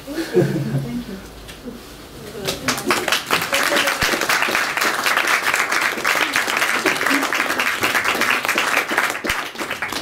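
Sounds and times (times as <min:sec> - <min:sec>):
audience applauding: 0:02.5 - 0:10.0.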